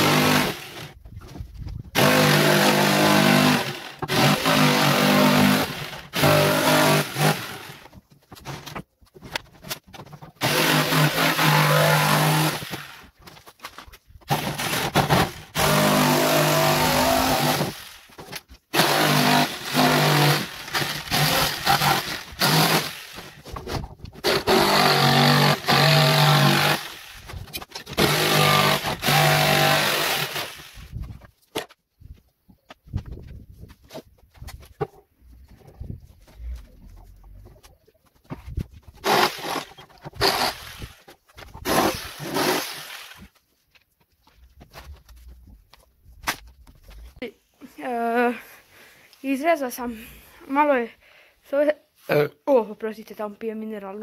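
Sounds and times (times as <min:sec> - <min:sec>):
jigsaw cutting wood: 0:00.0 - 0:01.0, 0:01.9 - 0:07.9, 0:10.4 - 0:13.2, 0:14.3 - 0:31.1, 0:39.0 - 0:43.4.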